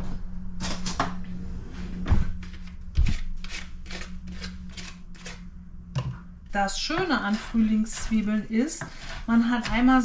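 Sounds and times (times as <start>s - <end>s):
low steady hum: 0.0s - 10.0s
utensil scraping strokes: 2.6s - 5.5s, 6.6s - 10.0s.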